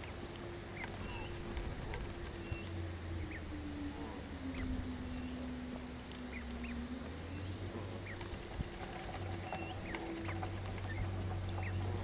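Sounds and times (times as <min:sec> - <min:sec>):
goslings peeping: 0:00.0 - 0:12.0
low engine drone: 0:00.0 - 0:12.0.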